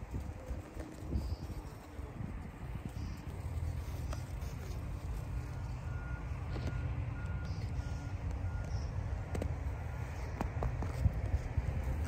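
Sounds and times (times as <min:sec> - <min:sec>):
reversing alarm beeping: 0:05.4 - 0:09.0.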